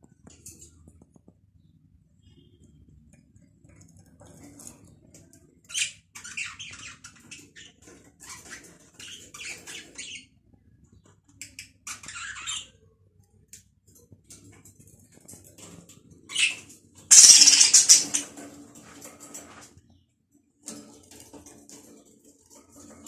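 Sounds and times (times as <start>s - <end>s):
budgerigars chattering and squawking: 16.3s - 18.3s.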